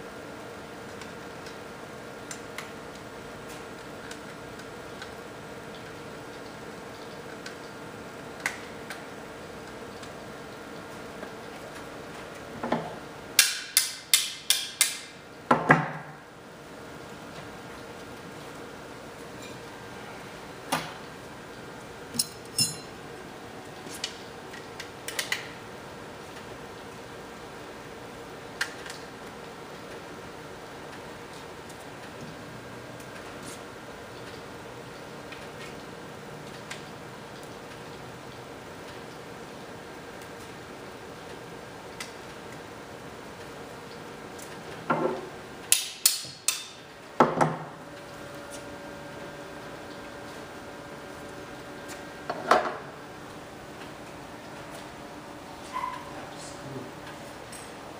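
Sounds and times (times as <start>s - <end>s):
metal rails clinking: 22.2s - 22.9s.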